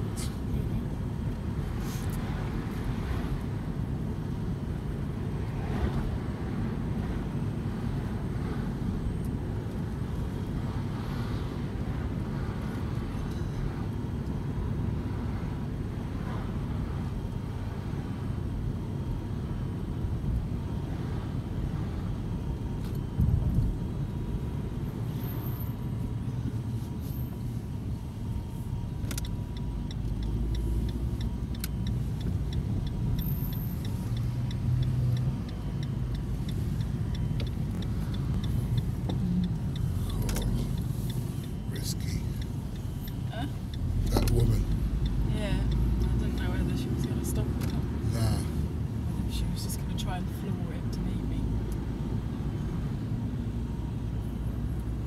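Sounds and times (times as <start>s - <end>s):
road and engine rumble: 0.0s - 55.0s
turn signal ticking: 25.9s - 55.0s.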